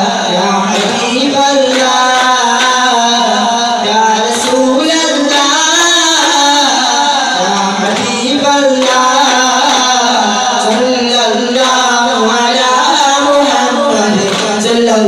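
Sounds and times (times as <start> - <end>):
devotional song singing: 0.0 - 15.0
frame drums beating: 0.7 - 3.2, 7.5 - 11.0.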